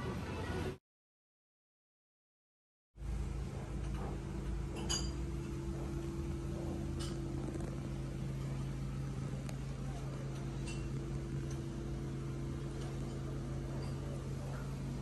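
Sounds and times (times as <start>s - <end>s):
low mechanical hum: 3.0s - 15.0s.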